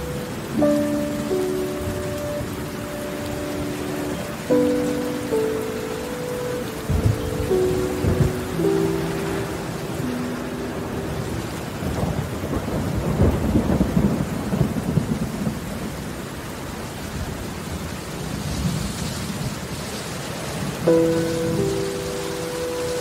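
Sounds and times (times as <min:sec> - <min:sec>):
steady rain: 0:00.0 - 0:23.0
thunder rolling: 0:06.8 - 0:16.0.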